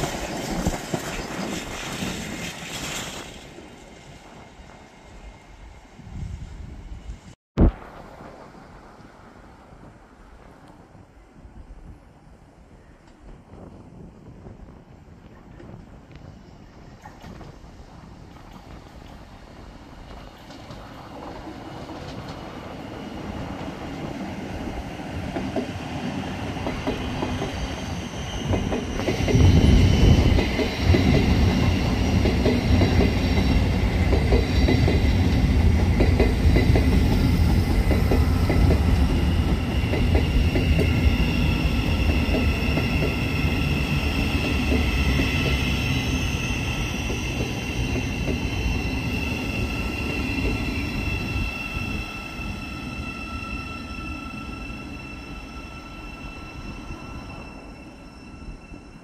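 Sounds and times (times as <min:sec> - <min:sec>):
train rumble: 0:00.0 - 0:59.0.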